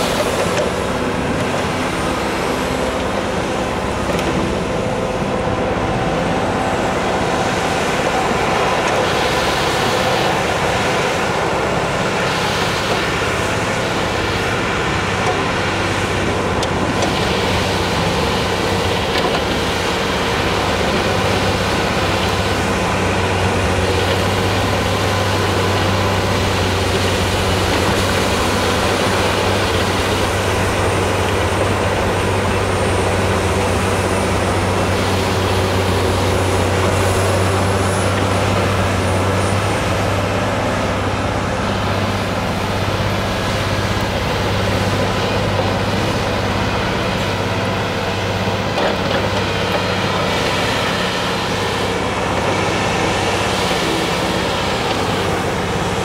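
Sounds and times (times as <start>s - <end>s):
heavy diesel machinery droning: 0.0s - 56.0s.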